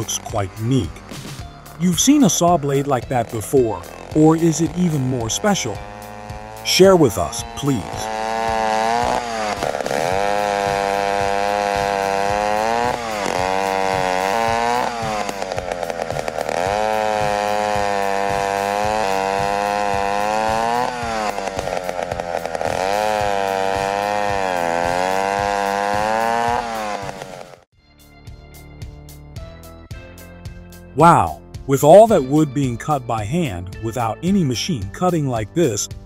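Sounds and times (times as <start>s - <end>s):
chainsaw cutting log: 0.0s - 27.7s.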